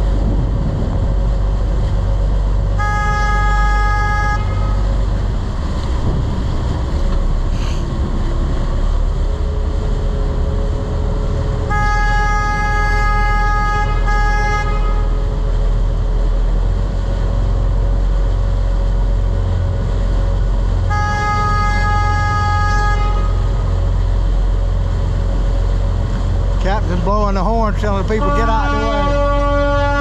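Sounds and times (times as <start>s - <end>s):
boat engines rumbling: 0.0s - 30.0s
churning wake: 0.0s - 30.0s
boat horn blasts: 2.1s - 6.1s, 11.1s - 15.9s, 20.6s - 24.7s, 26.7s - 30.0s.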